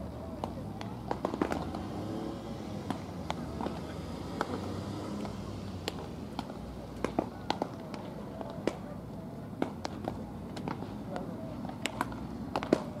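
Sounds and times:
voices chattering: 0.0s - 13.0s
baseballs smacking into gloves: 0.4s - 1.8s, 2.8s - 3.8s, 5.2s - 8.9s, 9.6s - 13.0s.

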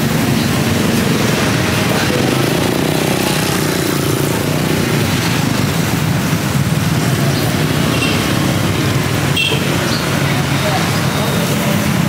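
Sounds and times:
street noise: 0.0s - 12.0s.

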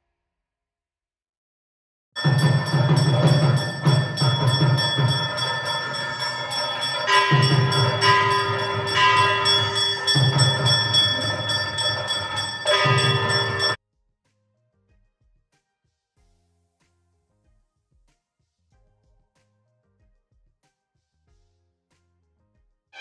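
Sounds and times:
bells ringing: 2.2s - 13.8s
low pulsing beat: 2.2s - 13.8s.

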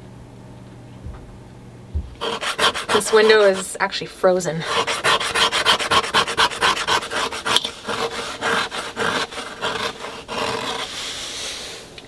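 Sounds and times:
fingers scratching frost off window: 2.2s - 3.7s, 4.7s - 11.1s.

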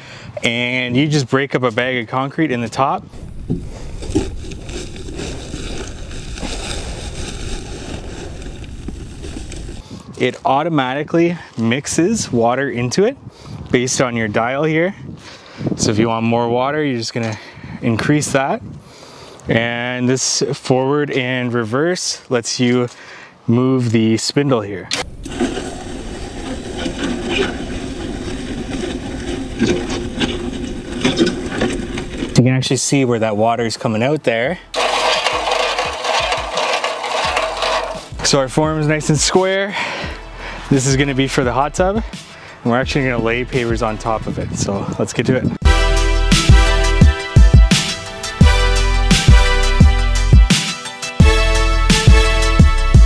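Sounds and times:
concrete mixer gritty grinding: 1.9s - 10.4s, 25.0s - 32.8s, 34.6s - 39.4s
dry concrete mix pouring into mixer: 34.8s - 38.2s.

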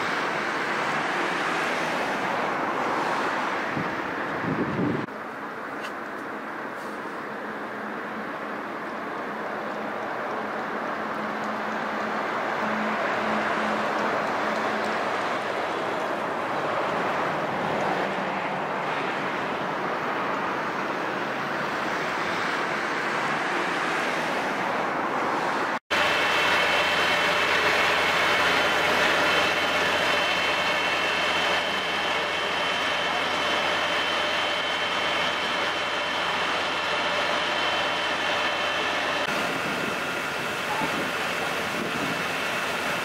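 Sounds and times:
pump engine with whine: 0.0s - 43.0s
vehicle engine running: 25.9s - 43.0s.

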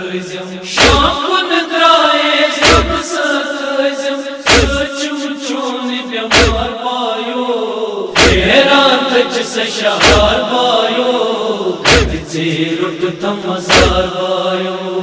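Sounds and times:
man chanting into a microphone: 0.0s - 15.0s
chest-beating thumps: 0.8s - 1.1s, 2.6s - 3.0s, 4.5s - 4.8s, 6.3s - 6.7s, 8.2s - 8.5s, 10.0s - 10.4s, 11.8s - 12.2s, 13.7s - 14.1s.

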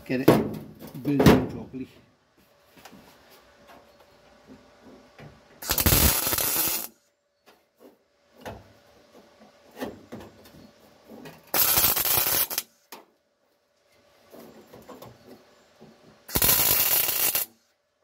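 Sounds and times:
welder bursts: 5.6s - 7.0s, 11.5s - 12.8s, 16.3s - 17.6s.

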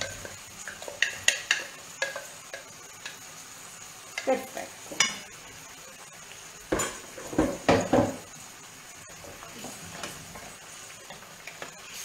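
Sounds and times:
pan and spoon knocking on hob: 0.0s - 3.2s, 6.7s - 8.3s
low sizzle from pan: 0.0s - 12.0s.

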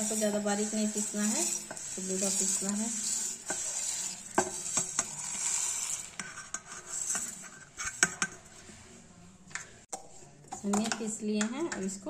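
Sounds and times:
dry seeds rustling in jar: 0.0s - 6.2s.

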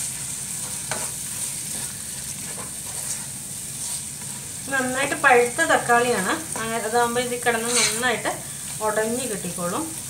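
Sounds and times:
wooden spatula scraping a pot: 0.0s - 4.6s, 7.5s - 8.2s
food sizzling in oil: 0.0s - 10.0s.

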